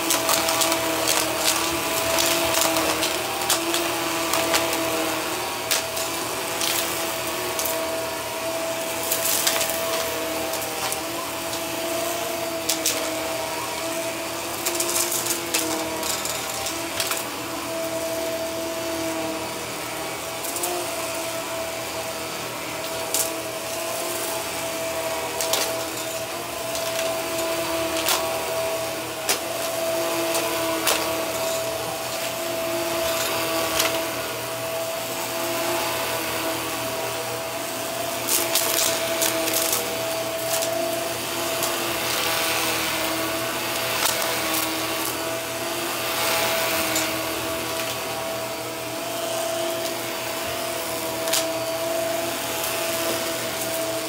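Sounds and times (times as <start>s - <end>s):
debris clicking in vacuum: 0.0s - 7.9s, 9.0s - 11.7s, 25.2s - 34.1s, 38.2s - 45.3s, 51.0s - 51.8s
vacuum cleaner running on carpet: 0.0s - 54.0s.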